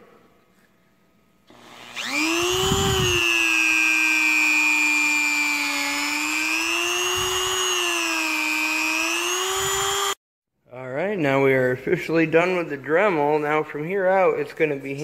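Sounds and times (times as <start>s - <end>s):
rotary tool whine: 1.5s - 10.2s.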